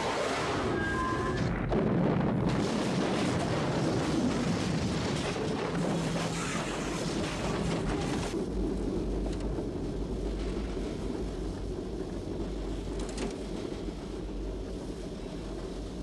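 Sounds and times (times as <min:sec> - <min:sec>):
locomotive low rumble: 0:00.0 - 0:16.0
rush of smashed snow and debris: 0:01.5 - 0:08.4.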